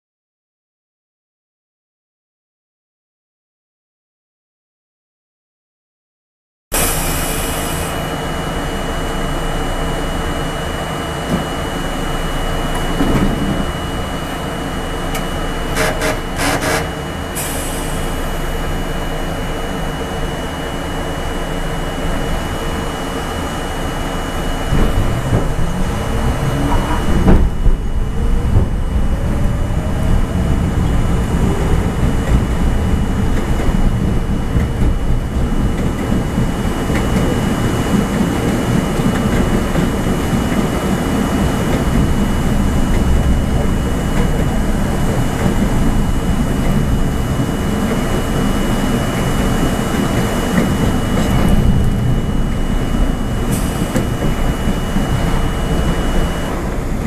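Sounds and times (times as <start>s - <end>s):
subway train motors whining: 6.7s - 57.0s
train running noise: 6.7s - 57.0s.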